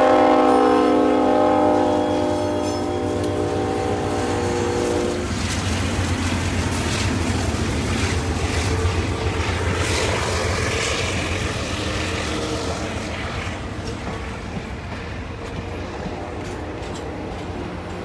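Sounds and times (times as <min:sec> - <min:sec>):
train air horn: 0:00.0 - 0:05.4
train coaches rumbling past: 0:00.0 - 0:18.0
wheels clacking over rail joints: 0:13.2 - 0:18.0.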